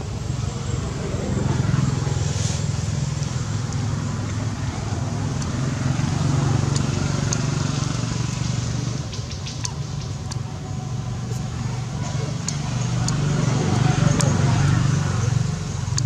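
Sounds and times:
engine humming: 0:00.0 - 0:16.0
faint high ticks: 0:05.2 - 0:10.5.

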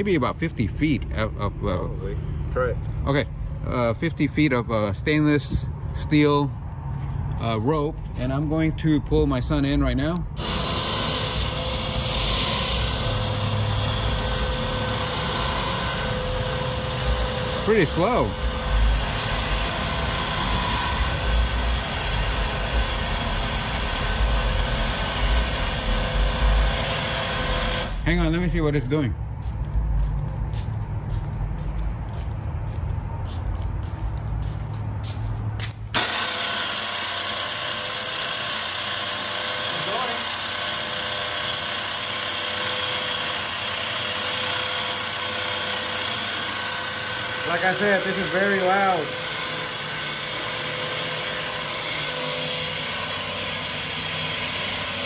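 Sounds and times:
electric winch running: 0:10.1 - 0:28.4, 0:35.9 - 0:55.0.

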